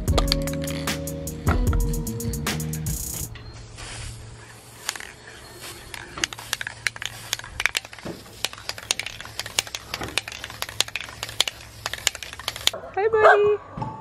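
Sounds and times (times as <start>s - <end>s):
sharp clicks and crackles: 0.0s - 1.0s, 4.4s - 12.8s.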